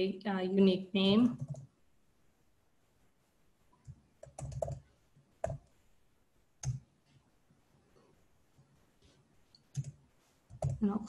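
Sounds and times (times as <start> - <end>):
keyboard typing: 1.3 - 1.7, 3.8 - 5.7, 6.6 - 6.9, 9.6 - 10.9.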